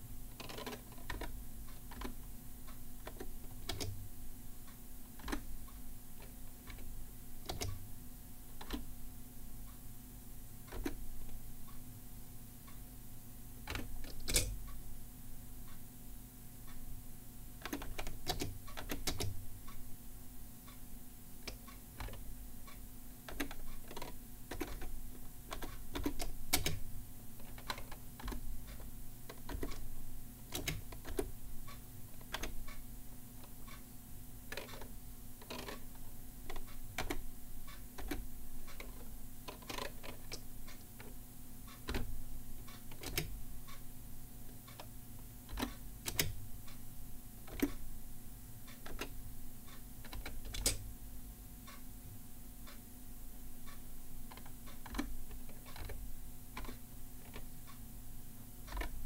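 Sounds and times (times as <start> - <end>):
keyboard keystroke clicks: 3.1 - 4.0, 7.5 - 7.8, 25.5 - 26.8, 29.3 - 29.8, 30.5 - 31.3, 42.9 - 43.3, 45.5 - 46.4, 50.0 - 50.8, 54.3 - 56.0.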